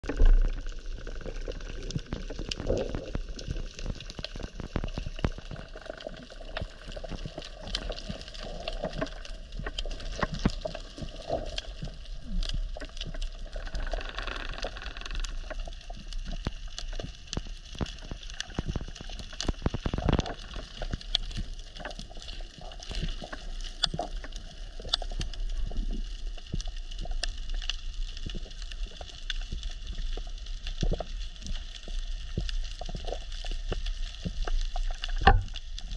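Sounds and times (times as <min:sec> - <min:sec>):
low water rumble: 0:00.0 - 0:35.9
underwater clicks and pops: 0:16.2 - 0:27.3, 0:34.2 - 0:35.9.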